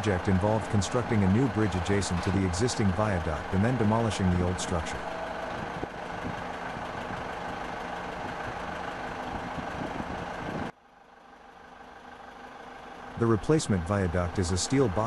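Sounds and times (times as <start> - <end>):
machinery noise: 0.0 - 8.4.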